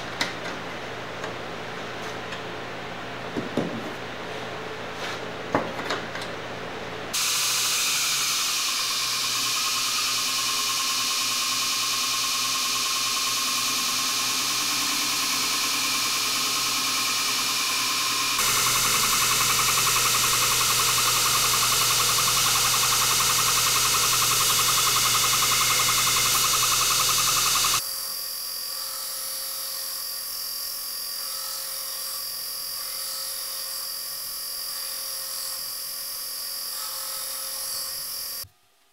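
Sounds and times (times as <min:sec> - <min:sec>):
belt grinder grinding steel: 0:07.2 - 0:27.8.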